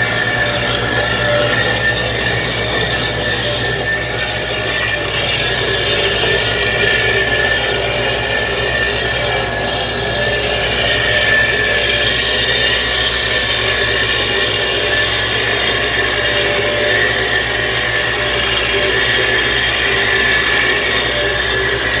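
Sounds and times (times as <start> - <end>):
road roller diesel engine: 0.0 - 22.0.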